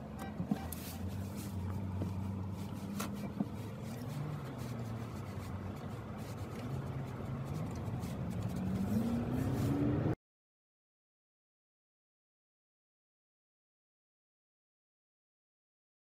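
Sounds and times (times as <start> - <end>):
car engine humming: 0.0 - 10.2.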